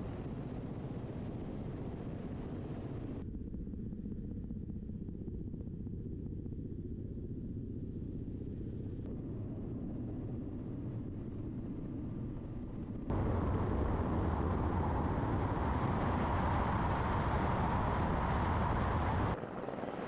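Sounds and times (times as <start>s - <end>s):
engine-like roar: 13.1s - 19.4s.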